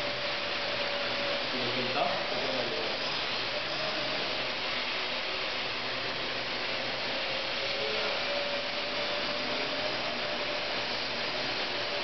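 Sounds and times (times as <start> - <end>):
quadcopter whirring hum: 0.0 - 12.0.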